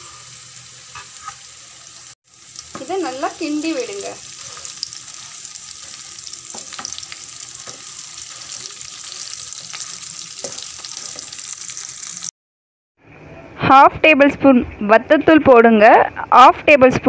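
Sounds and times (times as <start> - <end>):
onions sizzling in oil: 0.0 - 12.3
spatula scraping and tapping pan: 4.4 - 11.6.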